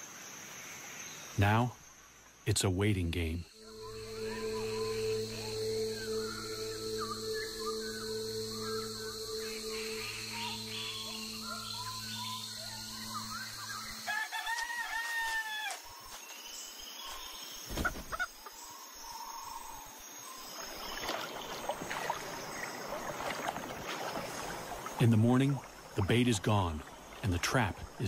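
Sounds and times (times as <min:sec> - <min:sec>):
steady low hum: 0:03.2 - 0:14.1
rooster crowing: 0:14.0 - 0:15.8
paddle splashing in water: 0:20.6 - 0:25.0.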